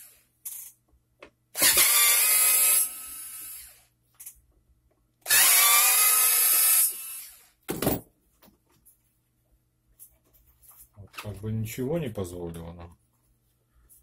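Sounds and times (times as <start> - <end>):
electric screwdriver spinning: 1.6 - 3.7, 5.3 - 7.4.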